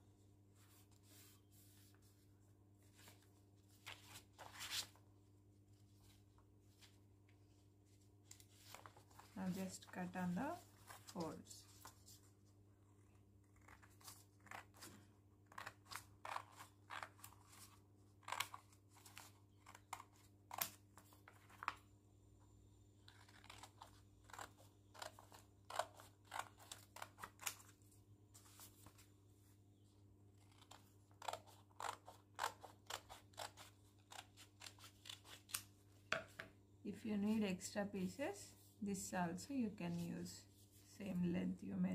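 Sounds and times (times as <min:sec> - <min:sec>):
scissors snipping paper: 0:13.5 - 0:21.1, 0:23.1 - 0:27.7, 0:30.4 - 0:35.7.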